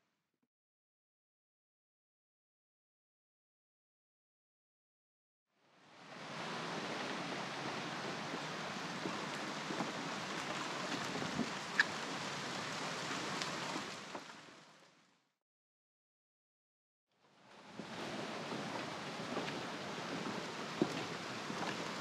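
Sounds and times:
river water flowing: 5.6 - 15.0, 17.2 - 22.0.

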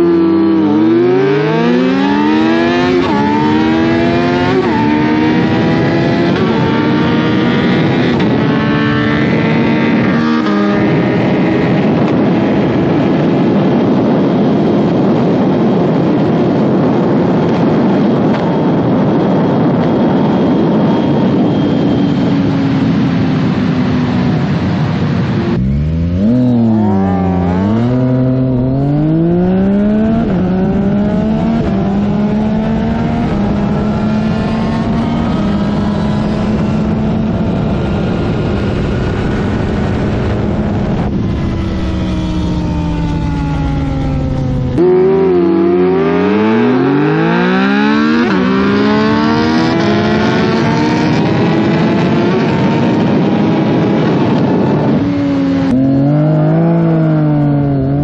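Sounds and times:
motorcycle engine at full throttle: 0.0 - 58.0
wind rushing past: 0.0 - 58.0.

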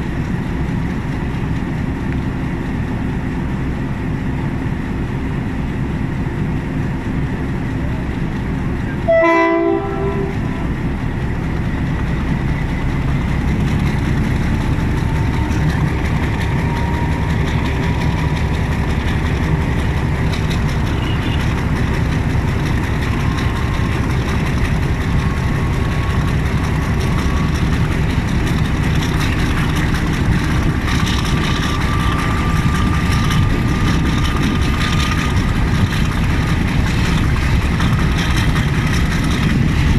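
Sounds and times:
diesel locomotive rumbling: 0.0 - 39.9
train horn blast: 9.0 - 10.8, 21.0 - 21.5.

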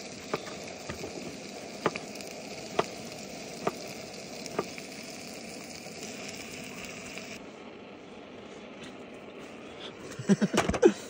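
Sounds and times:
vegetables sizzling in a pan: 0.0 - 7.4.

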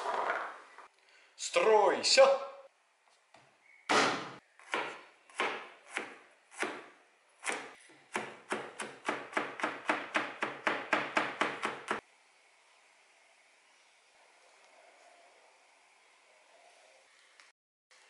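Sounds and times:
knife chopping on wooden board: 3.9 - 12.0.

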